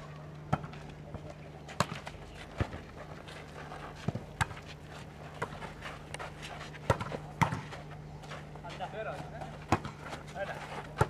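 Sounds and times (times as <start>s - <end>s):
volleyball slaps and thumps: 6.8s - 7.8s, 9.6s - 11.0s.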